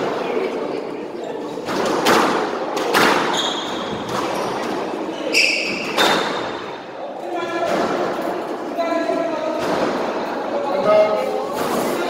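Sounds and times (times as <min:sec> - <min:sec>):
shoes squeaking on wooden floor: 0:03.3 - 0:06.4.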